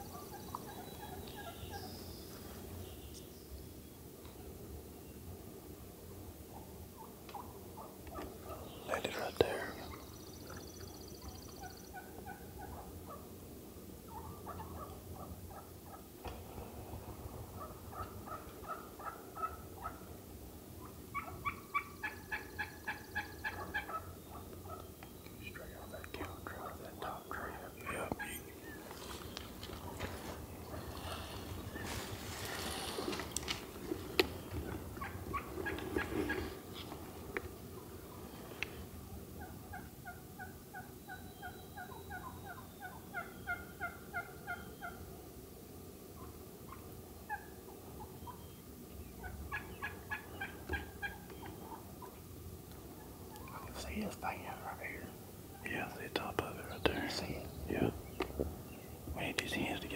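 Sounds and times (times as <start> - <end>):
turkeys yelping: 0.0 - 1.9, 6.5 - 8.7, 10.4 - 13.3, 14.0 - 16.4, 17.1 - 25.6, 27.6 - 45.1, 49.2 - 53.6.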